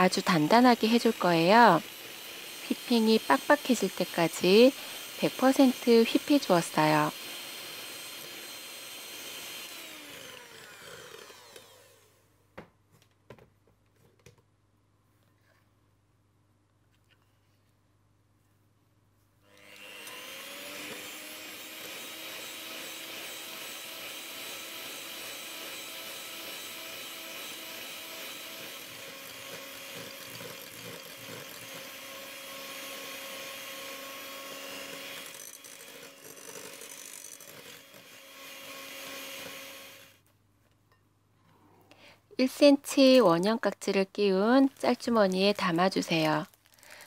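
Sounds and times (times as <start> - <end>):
electric hand mixer whining: 0.0 - 12.2, 19.5 - 40.2.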